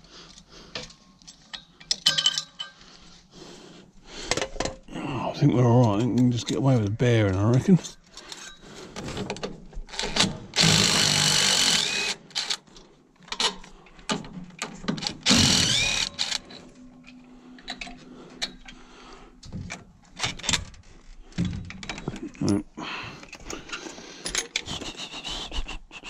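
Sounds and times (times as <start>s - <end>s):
metal parts clicking and knocking: 0.7s - 2.9s, 19.4s - 24.9s
cordless drill running: 10.0s - 12.6s, 15.1s - 16.5s.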